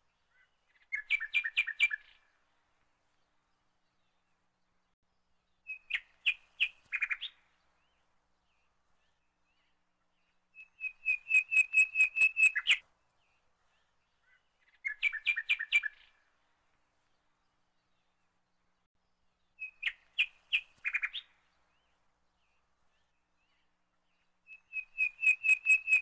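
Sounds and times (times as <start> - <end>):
bird chirping: 0.1 - 2.4, 5.4 - 16.3, 19.4 - 26.0.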